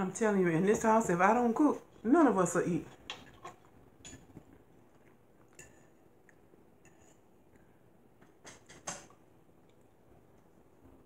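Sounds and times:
soft chewing: 3.0s - 8.0s, 9.1s - 11.0s.

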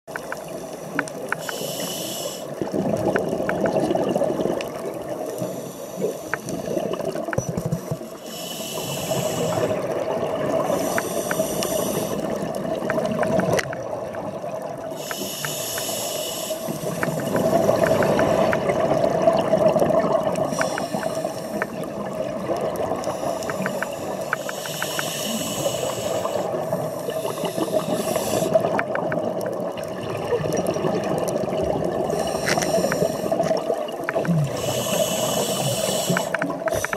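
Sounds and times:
faint clicks: 0.1s - 2.3s, 3.0s - 3.9s, 5.3s - 8.2s, 10.7s - 13.9s, 15.0s - 18.8s, 20.4s - 21.9s, 22.5s - 26.4s, 32.2s - 36.9s
exhaled air bubbling underwater: 0.1s - 36.9s
regulator inhalation hiss: 0.4s - 2.6s, 5.2s - 6.7s, 8.2s - 9.8s, 10.7s - 12.4s, 15.0s - 17.4s, 20.5s - 21.8s, 23.0s - 28.7s, 32.1s - 33.5s, 34.5s - 36.9s.

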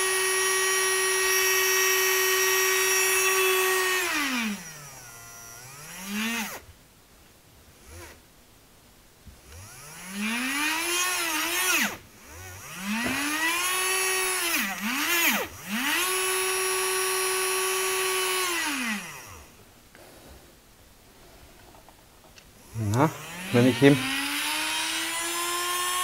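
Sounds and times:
small motor whining: 0.0s - 6.6s, 7.8s - 8.2s, 9.4s - 19.6s, 22.6s - 26.0s.

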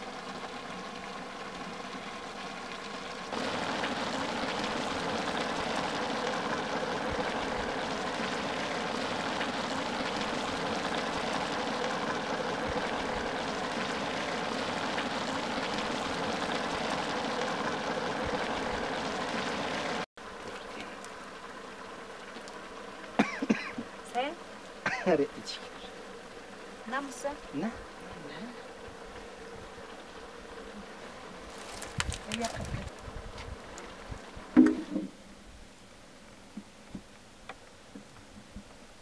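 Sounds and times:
broth boiling hiss: 0.0s - 39.0s.

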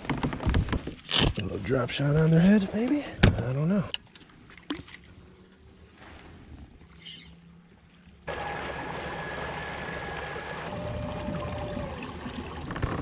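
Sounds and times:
water rushing along a hull: 4.3s - 13.0s.

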